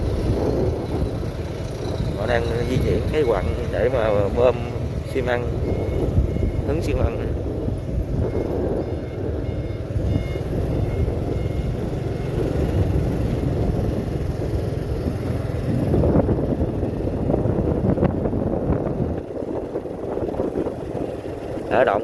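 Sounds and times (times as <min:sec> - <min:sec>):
low vehicle rumble: 0:00.0 - 0:22.0
reversing alarm beeping: 0:02.3 - 0:13.4.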